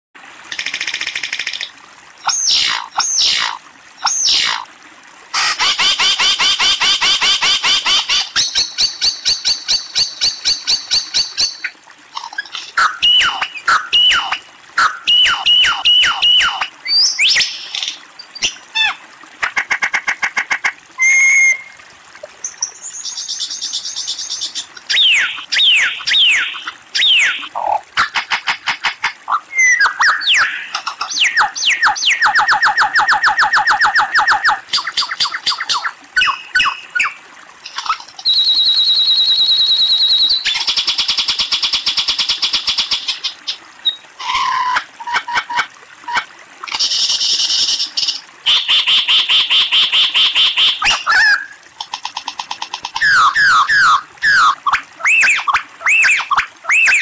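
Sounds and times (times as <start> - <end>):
lyrebird singing: 22.5 - 27.6, 29.3 - 32.3, 52.9 - 57.0.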